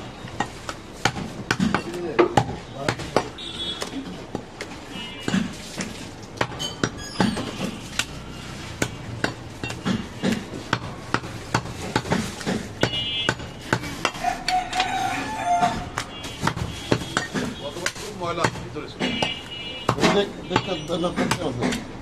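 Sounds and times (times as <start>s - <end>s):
knife chopping meat on wood: 8.8s - 14.9s, 15.6s - 21.9s.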